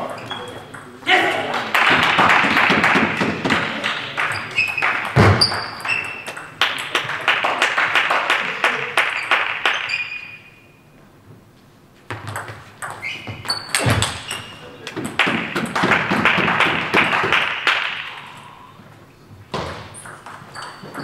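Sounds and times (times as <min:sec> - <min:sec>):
shoes squeaking on floor: 0:00.0 - 0:01.0, 0:04.2 - 0:06.5, 0:09.1 - 0:11.1, 0:11.9 - 0:15.0, 0:18.7 - 0:21.0.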